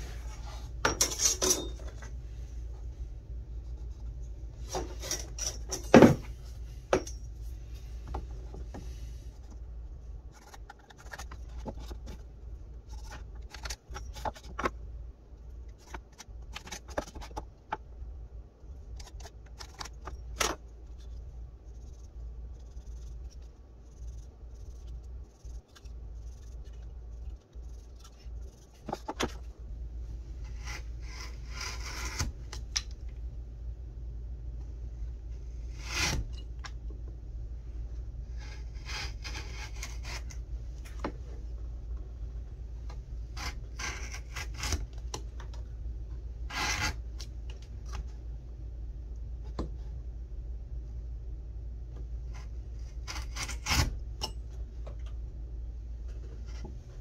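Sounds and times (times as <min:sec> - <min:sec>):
gouge scraping wood: 0:30.4 - 0:32.4, 0:35.5 - 0:36.4, 0:38.3 - 0:40.4, 0:43.2 - 0:44.9, 0:46.5 - 0:47.2, 0:52.4 - 0:54.0.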